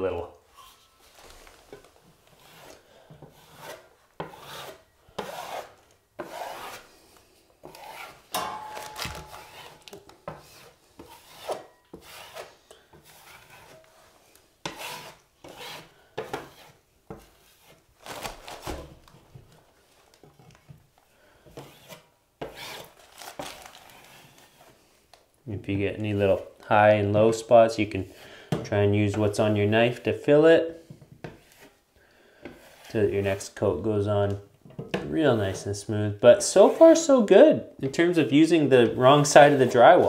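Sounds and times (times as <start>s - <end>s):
steel knife scraping wall compound: 1.7s - 7.0s, 7.6s - 17.9s, 21.4s - 24.8s, 30.8s - 33.9s, 34.9s - 35.8s, 36.4s - 37.2s, 37.8s - 40.0s.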